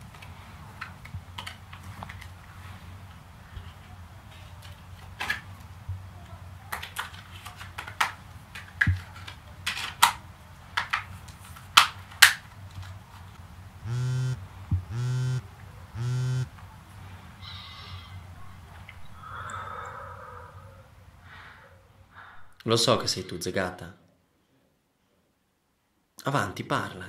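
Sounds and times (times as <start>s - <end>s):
mobile phone buzzing: 13.8s - 16.5s.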